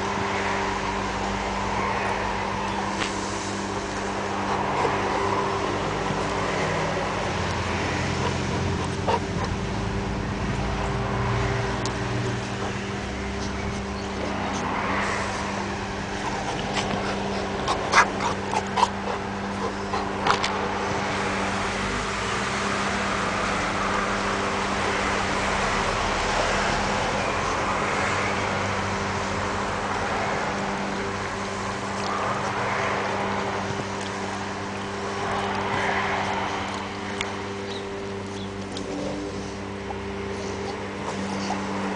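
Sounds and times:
low hum: 0:00.0 - 0:41.9
dog breathy play noises: 0:02.6 - 0:21.5, 0:29.9 - 0:41.9.

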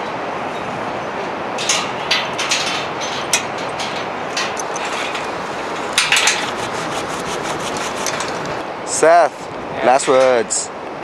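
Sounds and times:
steady rushing background noise: 0:00.0 - 0:11.0
straps rustling and clicking: 0:01.6 - 0:08.6.

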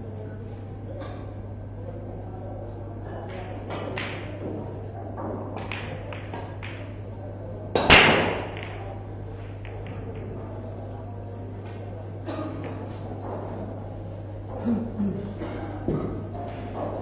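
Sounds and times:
low hum: 0:00.0 - 0:15.2
pool balls clicking: 0:03.2 - 0:11.9, 0:15.8 - 0:17.0
cue ball cracking into racked balls: 0:03.3 - 0:10.5.

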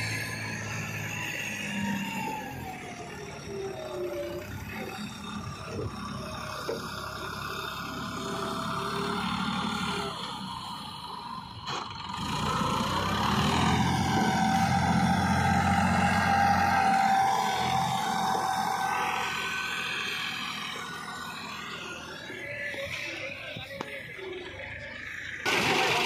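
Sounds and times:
tractor diesel engine under load: 0:00.0 - 0:26.0.

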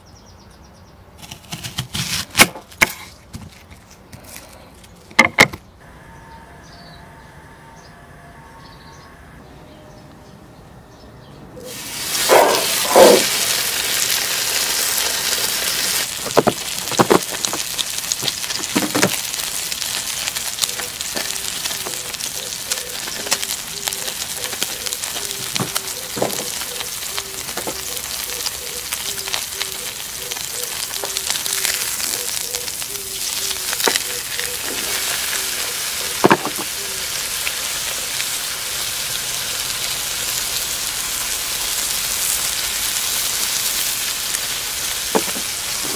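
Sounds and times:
steak sizzling on griddle: 0:11.7 - 0:45.9.

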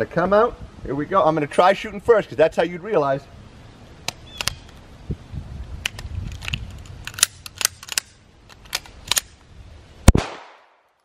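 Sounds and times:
pistol metallic clicks and clacks: 0:05.9 - 0:09.4.

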